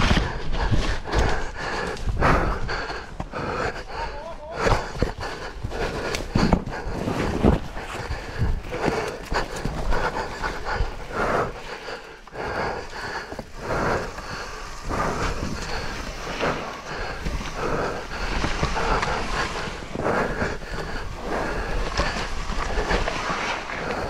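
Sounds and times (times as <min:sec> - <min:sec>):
bike rattling over rough ground: 0:00.0 - 0:24.0
person breathing hard: 0:00.0 - 0:24.0.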